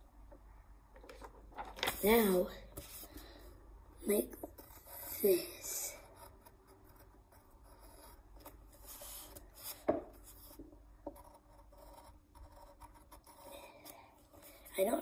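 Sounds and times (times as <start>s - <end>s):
pencil scratching on paper: 4.1s - 15.0s.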